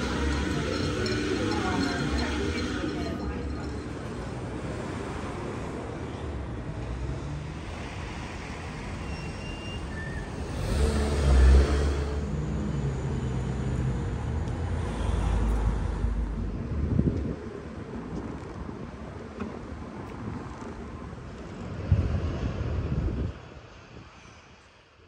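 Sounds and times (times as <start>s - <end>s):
road traffic: 0.0s - 25.0s
vehicle passing loudly: 10.4s - 13.6s.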